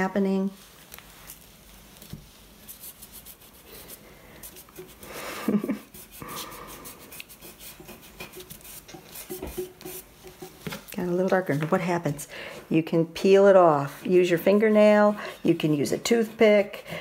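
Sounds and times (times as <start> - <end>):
fingertips rubbing pastel on paper: 0.5 - 10.7, 13.6 - 16.9.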